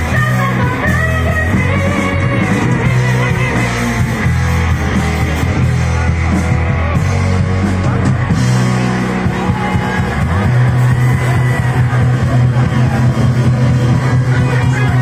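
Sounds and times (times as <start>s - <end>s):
woman singing: 0.0s - 3.9s
bass guitar: 0.0s - 15.0s
drums: 0.0s - 15.0s
electric guitars: 0.0s - 15.0s.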